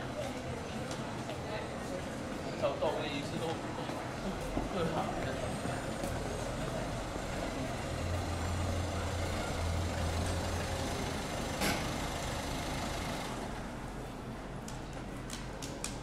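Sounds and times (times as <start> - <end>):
traffic noise: 0.0 - 16.0
vehicle engine rumble: 5.2 - 15.2.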